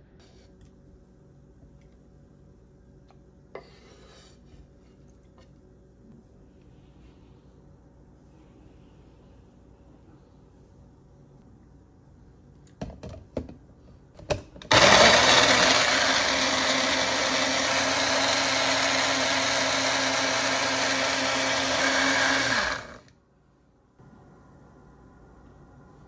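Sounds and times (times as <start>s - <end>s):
blender motor running: 14.7s - 23.1s.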